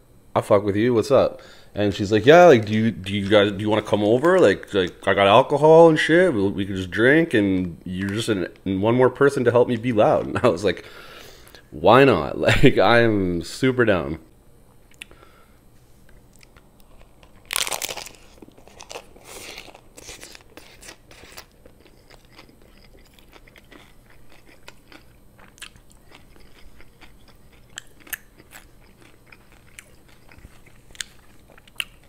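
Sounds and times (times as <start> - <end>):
taco shell crunching: 2.5 - 5.2, 16.0 - 32.0
soft chewing: 15.9 - 32.0.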